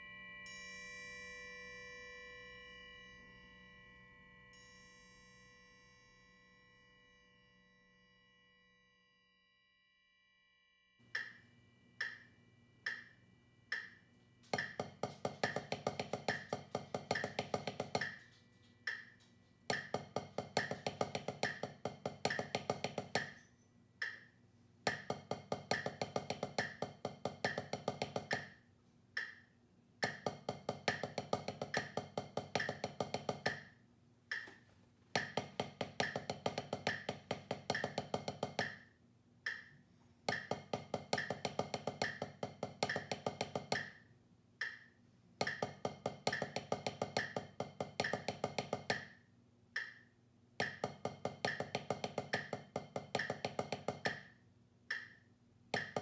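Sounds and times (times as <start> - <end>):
drumsticks on practice pad: 11.0 - 28.6, 29.2 - 49.2, 49.8 - 56.0
metronome clicking: 11.1 - 14.0, 15.4 - 23.4, 24.0 - 28.6, 29.2 - 33.7, 34.3 - 34.6, 35.2 - 44.0, 44.6 - 49.2, 49.8 - 54.3, 54.9 - 56.0.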